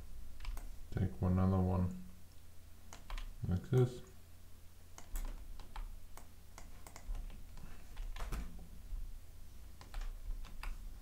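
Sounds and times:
low steady hum: 0.0s - 11.0s
computer mouse and keyboard clicks: 0.4s - 0.7s, 2.9s - 3.9s, 4.9s - 8.5s, 9.8s - 10.8s.

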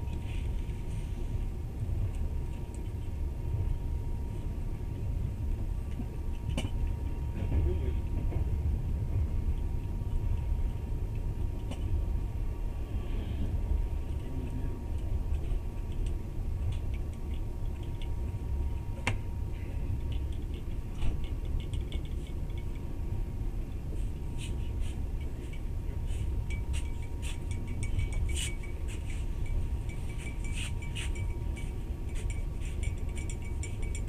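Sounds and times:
train rumble inside carriage: 0.0s - 34.0s
light clinking and rattling: 19.9s - 34.0s.

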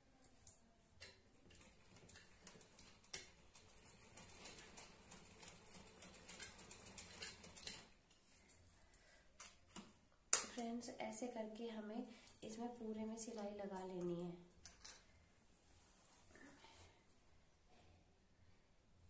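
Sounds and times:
sewing machine clicks and ticks: 1.0s - 8.0s.

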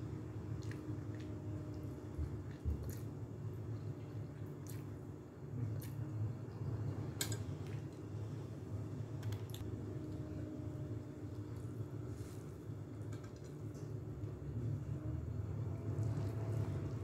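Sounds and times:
steady low hum: 0.0s - 17.0s
wet chewing: 0.5s - 3.2s.

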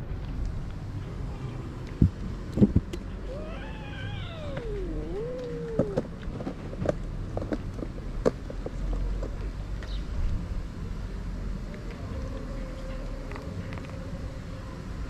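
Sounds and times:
cat meowing: 3.3s - 6.0s.

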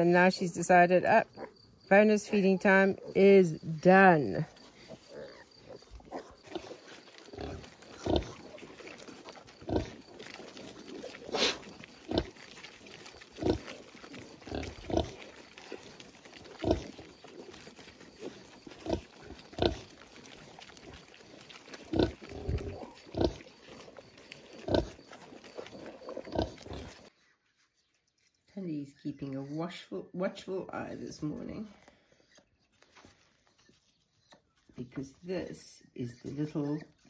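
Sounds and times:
pigs grunting: 1.1s - 27.1s.

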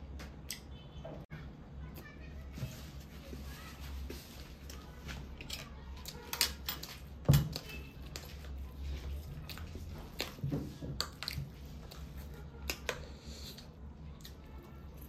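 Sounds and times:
person chewing: 9.0s - 15.0s.

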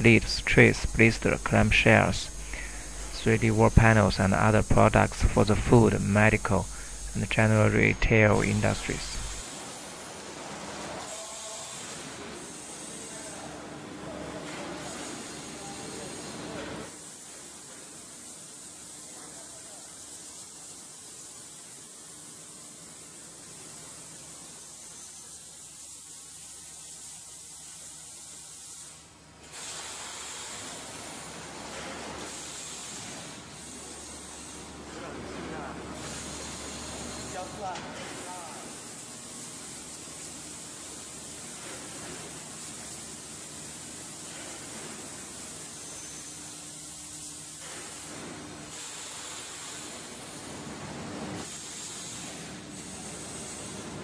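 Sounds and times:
hissing air: 0.0s - 9.4s
machine low hum: 0.0s - 9.4s
vacuum forming machine hissing: 0.0s - 9.4s, 23.0s - 34.8s, 35.6s - 54.0s.

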